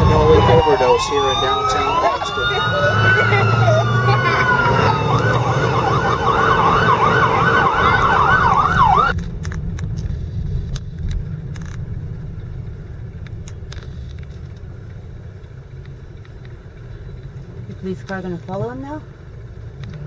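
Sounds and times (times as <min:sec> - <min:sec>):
siren on a fast yelp: 0:00.0 - 0:09.2
vehicle engine rumble: 0:00.0 - 0:20.0.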